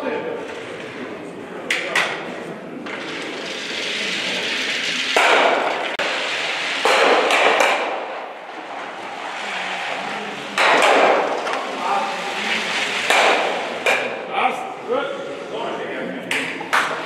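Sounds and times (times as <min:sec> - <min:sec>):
ice stock sliding on asphalt: 0:02.8 - 0:13.9.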